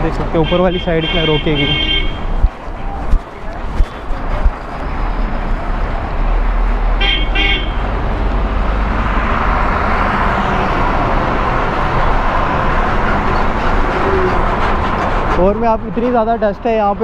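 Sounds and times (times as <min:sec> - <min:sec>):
highway traffic rumble: 0:00.0 - 0:17.0
vehicle horn toots: 0:00.4 - 0:02.3, 0:07.0 - 0:07.8.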